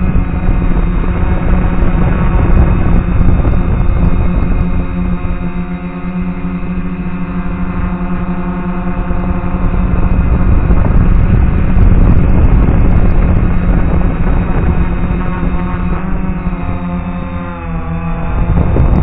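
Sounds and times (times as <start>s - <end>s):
drone motors whining: 0.0s - 19.0s
rush of air: 9.6s - 15.6s.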